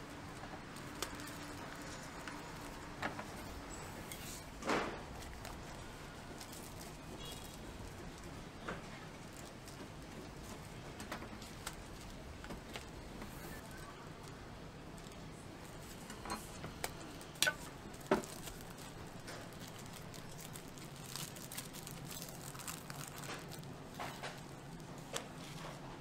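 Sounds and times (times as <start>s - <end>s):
candies clicking in plastic sleeves: 0.2s - 3.1s, 16.7s - 25.5s.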